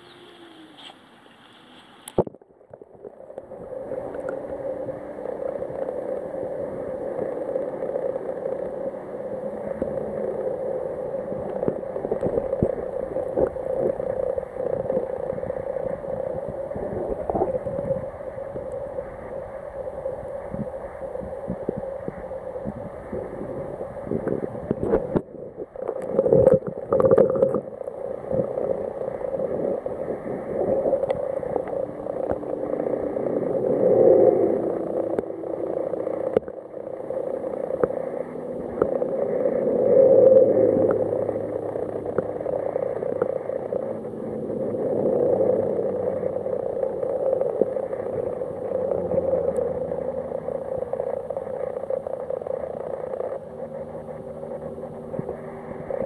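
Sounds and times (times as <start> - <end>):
underwater river rush: 0.0 - 56.0.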